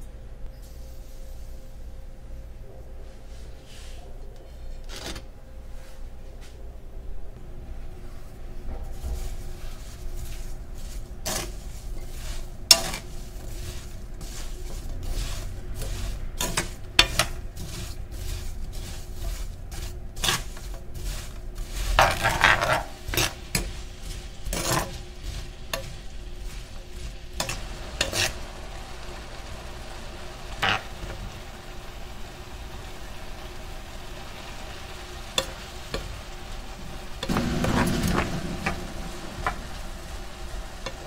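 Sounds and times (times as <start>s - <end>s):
apples sizzling faintly: 7.5s - 41.0s
spatula scraping frying pan: 8.8s - 31.4s, 35.3s - 36.3s.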